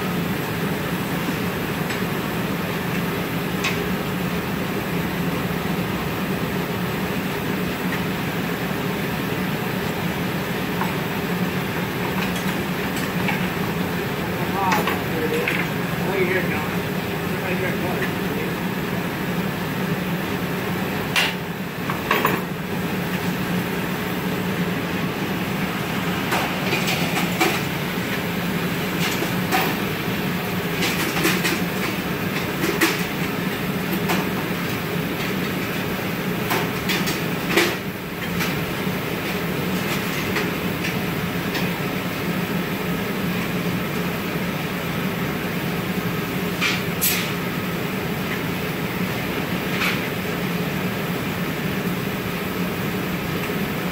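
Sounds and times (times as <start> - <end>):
gas furnace roaring: 0.0 - 53.9.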